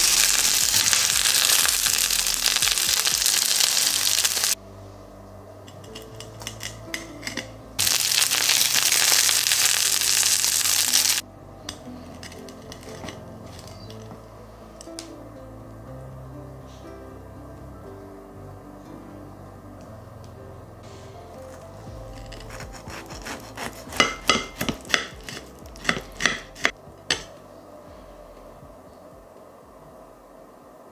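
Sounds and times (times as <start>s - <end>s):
frying sizzle in a pan: 0.0s - 4.6s, 7.8s - 11.2s
crunching breaded crust: 21.5s - 26.7s.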